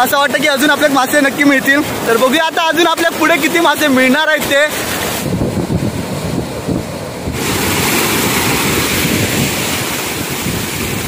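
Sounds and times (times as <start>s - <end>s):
sea surf breaking: 0.0s - 11.0s
wind rumbling on microphone: 4.5s - 11.0s.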